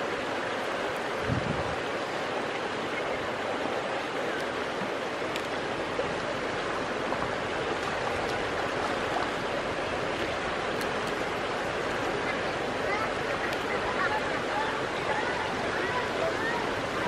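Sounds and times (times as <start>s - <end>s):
river water rushing: 0.0s - 17.0s
faint clicks: 5.3s - 5.6s.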